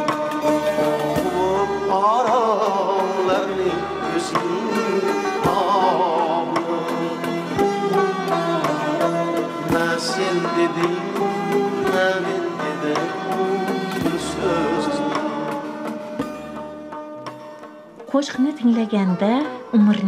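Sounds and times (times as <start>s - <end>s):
drum strokes: 0.0s - 19.5s
melodic instrumental lines: 0.0s - 20.0s.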